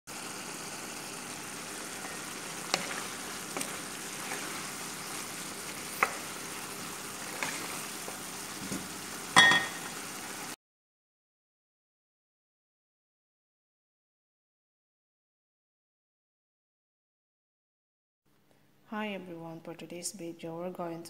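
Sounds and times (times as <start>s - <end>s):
food sizzling in a frying pan: 0.1s - 10.6s
wooden spoon clicking on pan: 5.8s - 6.5s.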